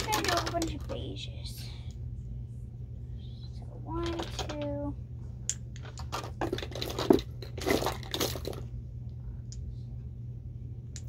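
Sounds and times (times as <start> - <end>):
bottles rustling and clattering: 5.8 - 8.6.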